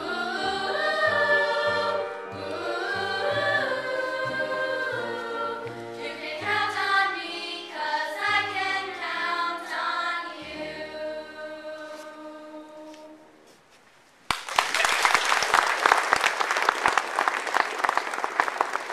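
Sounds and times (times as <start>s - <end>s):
piano accompaniment: 0.0s - 9.5s
girls' chorus singing: 0.0s - 13.3s
audience applause: 14.3s - 18.9s.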